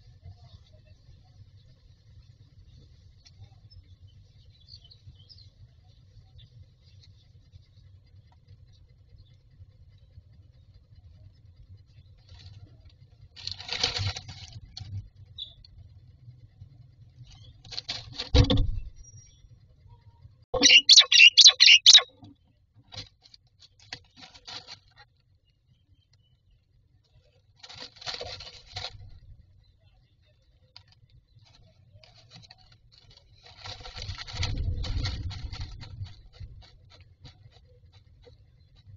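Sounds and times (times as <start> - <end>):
bird rustling nest material: 13.3 - 15.0, 20.6 - 22.1, 27.6 - 29.3, 31.4 - 38.9
harsh rapid bird pulses: 20.6 - 22.2.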